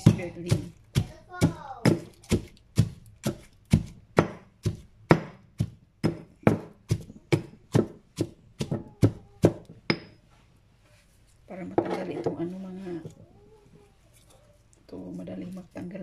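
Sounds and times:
stone pestle pounding in mortar: 0:00.0 - 0:10.2.

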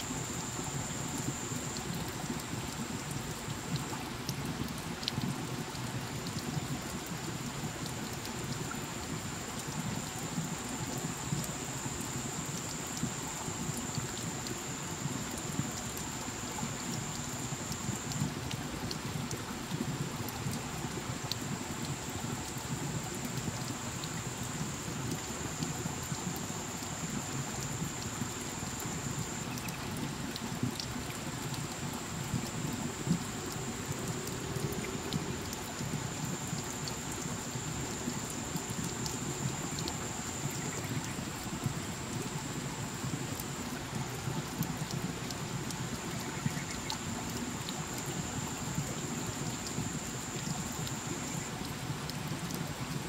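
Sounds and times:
water dripping on rock and leaves: 0:00.1 - 0:53.0
water drops pattering on leaves: 0:27.7 - 0:51.8.

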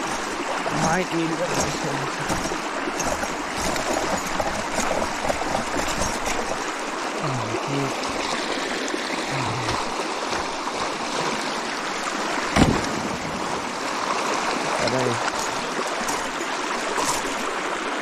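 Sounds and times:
creek water trickling: 0:00.0 - 0:18.0.

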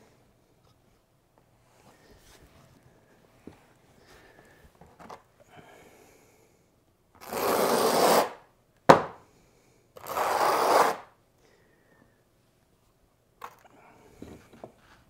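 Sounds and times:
sharp knock: 0:08.9 - 0:09.2.

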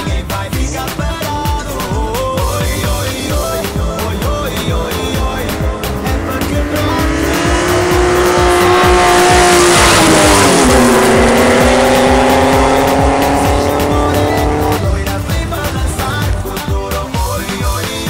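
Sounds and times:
race car engine at full throttle: 0:00.0 - 0:18.0.

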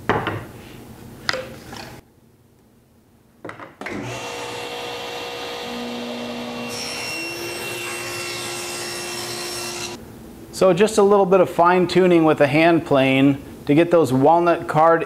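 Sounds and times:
table saw ripping wood: 0:03.9 - 0:10.0.

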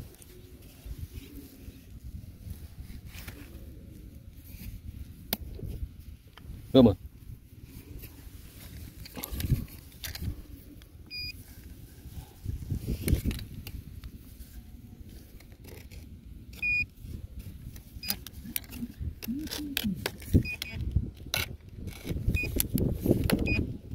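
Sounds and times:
metal detector beeps: 0:11.1 - 0:11.4, 0:16.6 - 0:16.9, 0:20.4 - 0:20.8, 0:22.3 - 0:22.6, 0:23.4 - 0:23.7.

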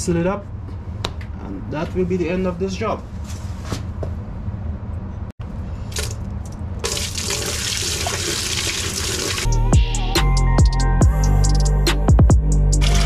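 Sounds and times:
water pouring and splashing: 0:05.9 - 0:09.5.

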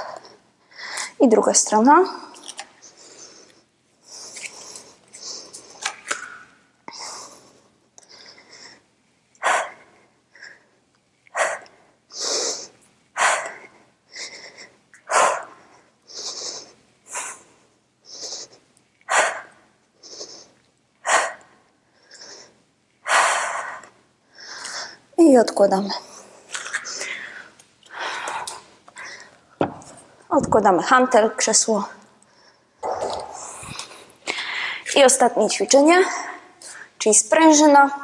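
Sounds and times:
soft inhales: 0:33.3 - 0:34.9.

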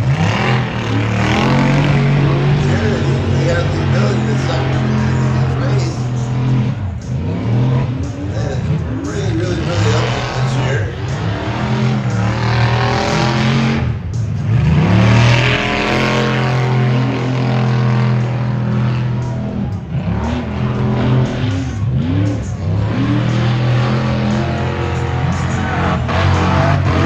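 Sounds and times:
truck engine racing: 0:00.0 - 0:27.0.

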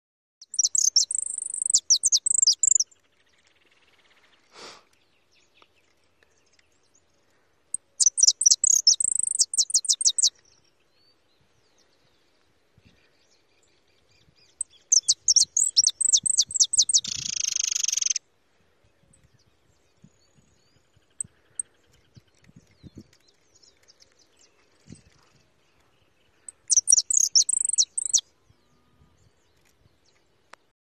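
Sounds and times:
finch singing trills: 0:00.4 - 0:02.8, 0:07.7 - 0:10.4, 0:14.2 - 0:18.2, 0:26.4 - 0:28.6.

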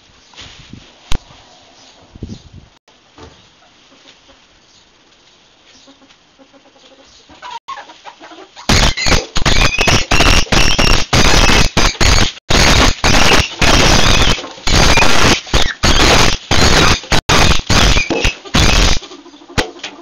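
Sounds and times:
ferrets squealing and screeching: 0:07.4 - 0:10.9.

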